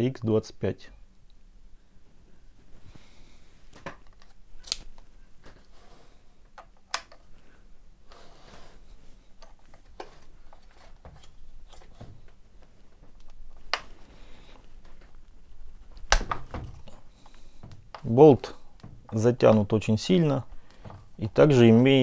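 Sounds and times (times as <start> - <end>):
faint scraping and handling: 5.1 - 6.5, 7.2 - 15.9.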